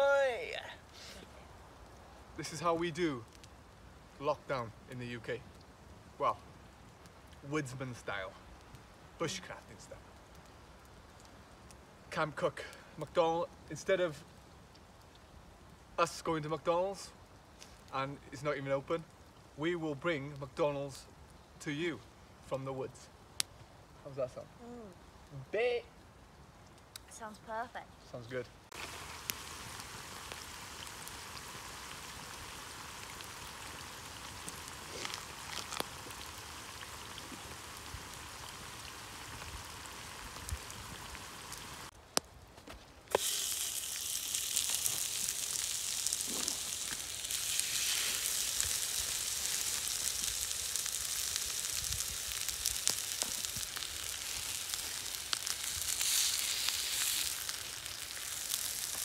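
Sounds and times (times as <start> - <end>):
food sizzling in hot fat: 9.0 - 14.2, 28.3 - 42.0, 43.1 - 59.0.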